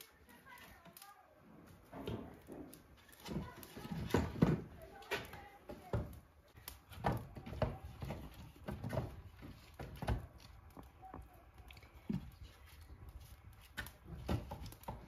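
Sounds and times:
wooden sticks knocking and scraping: 0.0 - 15.0.

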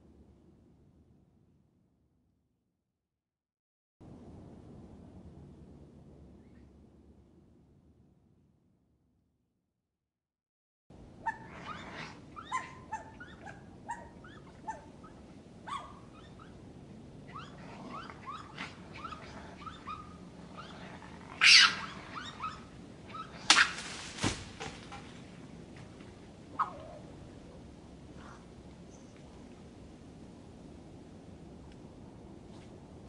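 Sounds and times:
raccoons chirping: 11.2 - 23.8.

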